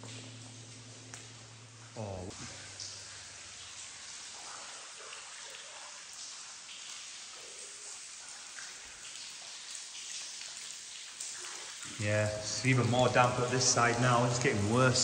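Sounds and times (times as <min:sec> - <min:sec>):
water dripping in tunnel: 0:00.0 - 0:15.0.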